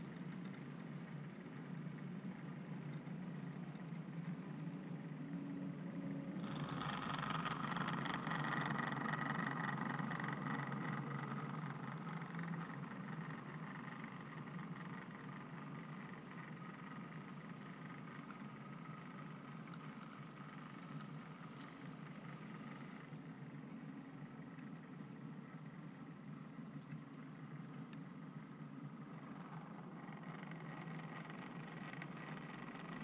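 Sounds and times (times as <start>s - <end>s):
model train rumbling on track: 4.5s - 17.4s.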